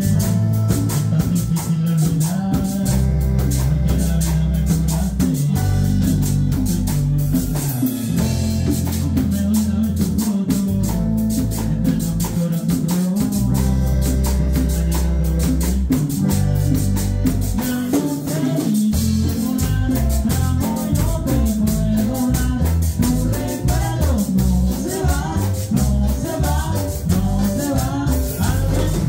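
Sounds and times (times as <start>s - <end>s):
congas: 0.0s - 29.0s
live band playing: 0.0s - 29.0s
man singing into microphone: 0.0s - 29.0s.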